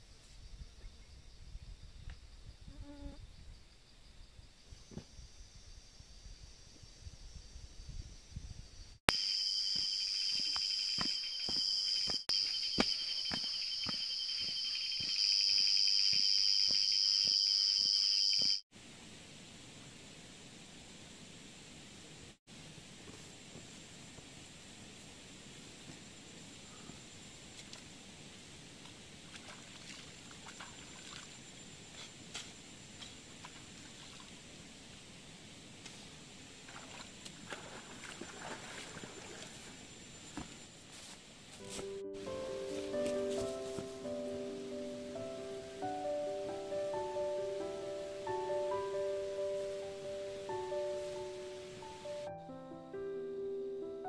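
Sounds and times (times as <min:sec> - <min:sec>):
fast-pulsing insect chirp: 0:00.4 - 0:18.6
insects trilling: 0:09.1 - 0:18.6
footsteps on a path: 0:09.8 - 0:18.0, 0:40.3 - 0:44.2
shallow stream hissing: 0:22.7 - 0:41.3
sloshing steps in water: 0:29.2 - 0:31.3, 0:36.7 - 0:39.8
water splashing: 0:29.2 - 0:31.4, 0:36.6 - 0:39.8.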